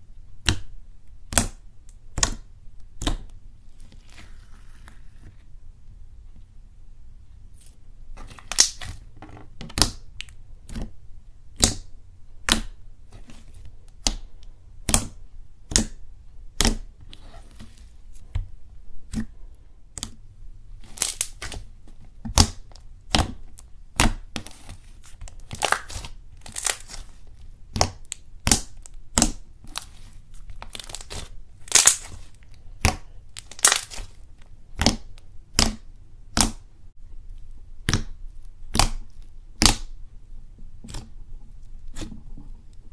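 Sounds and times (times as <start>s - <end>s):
hand squeezing slime: 20.8s - 21.7s, 22.3s - 35.8s
air pockets popping in slime: 25.4s - 34.2s, 37.8s - 40.0s.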